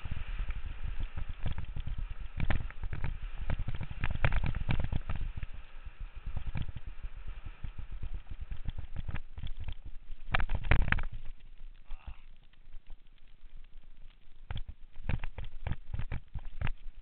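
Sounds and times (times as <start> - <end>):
mountain bike clattering on trail: 0.0 - 5.6, 7.5 - 11.5, 14.4 - 17.0.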